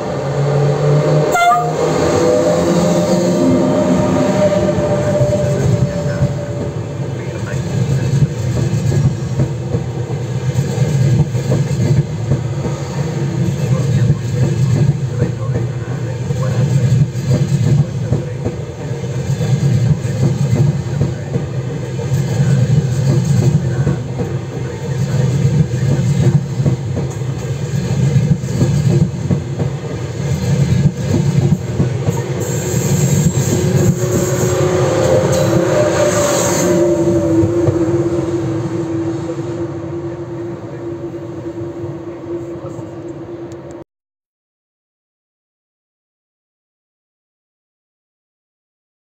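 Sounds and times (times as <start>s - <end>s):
train wheel rumble: 0.0s - 43.8s.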